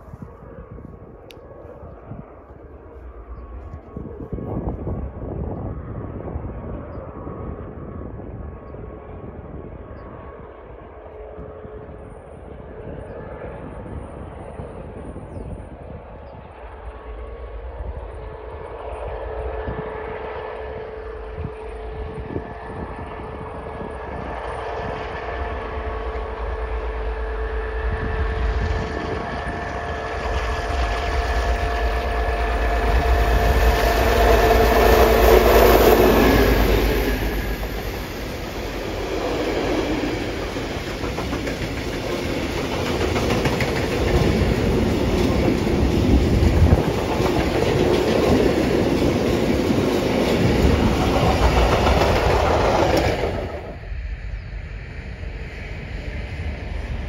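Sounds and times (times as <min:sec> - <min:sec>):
diesel locomotive engine whining: 0:00.0 - 0:57.0
train wheels clattering over rail joints: 0:38.8 - 0:53.6.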